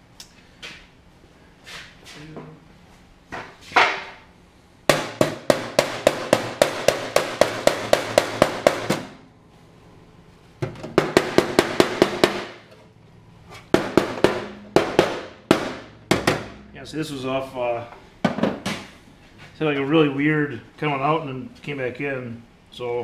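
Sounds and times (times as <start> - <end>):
hammer blows on sheet steel: 4.9 - 9.2.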